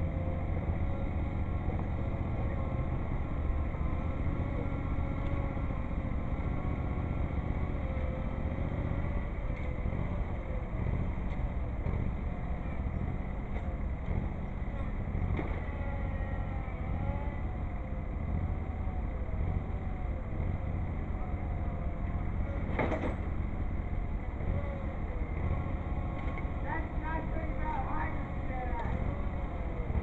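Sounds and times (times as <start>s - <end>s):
tractor engines rumbling: 0.0s - 30.0s.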